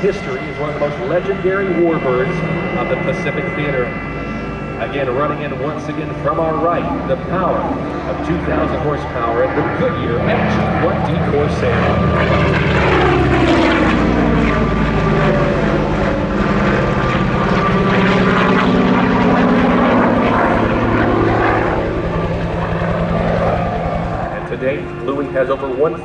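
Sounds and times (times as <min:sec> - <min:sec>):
propeller aircraft engine roaring: 0:00.0 - 0:26.0.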